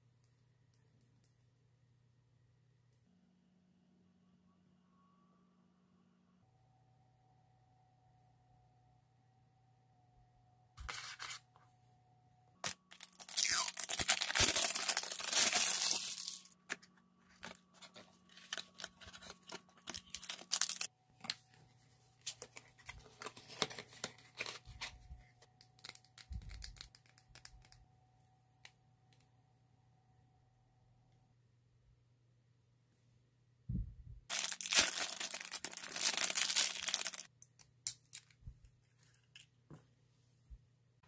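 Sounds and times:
paper rustling: 10.8s - 11.5s, 13.0s - 21.6s
cardboard tearing: 13.0s - 16.5s.

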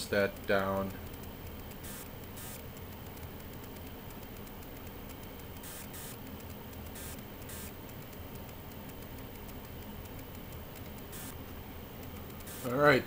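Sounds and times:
electrical hum and hiss: 0.0s - 13.0s.

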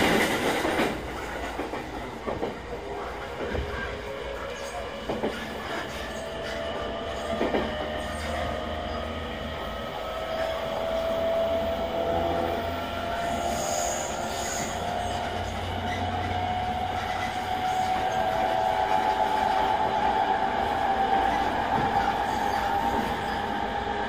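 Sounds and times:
rail-joint clicks: 0.0s - 8.5s
train wheels rumbling on rail: 0.0s - 24.0s.

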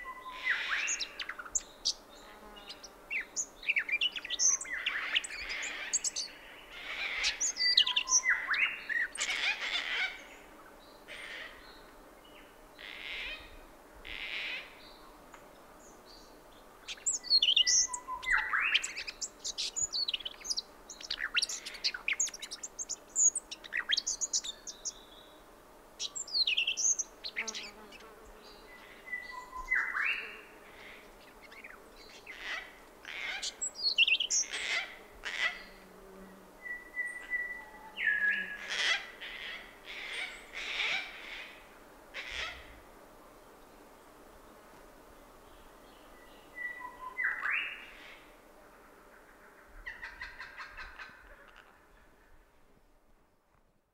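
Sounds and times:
background bird chorus: 0.0s - 53.0s
harsh rasping bird calls: 4.4s - 10.4s, 31.6s - 35.8s, 38.4s - 41.6s, 42.2s - 42.7s.

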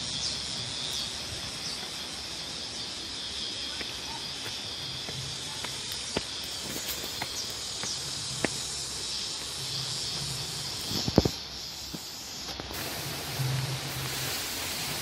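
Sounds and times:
insects chirring: 0.0s - 15.0s
footsteps on concrete: 3.7s - 12.7s.

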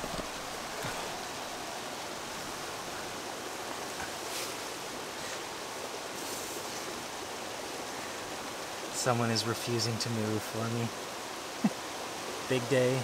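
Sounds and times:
steady rushing hiss: 0.0s - 13.0s
faint light rustles: 2.4s - 5.5s.

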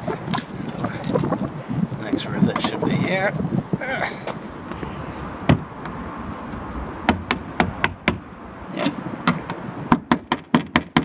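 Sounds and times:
tool knocking on rusted metal: 7.1s - 8.2s, 9.2s - 11.0s.

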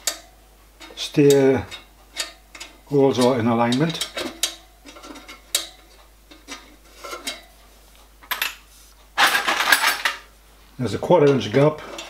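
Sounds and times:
metal clatter: 9.2s - 10.2s.

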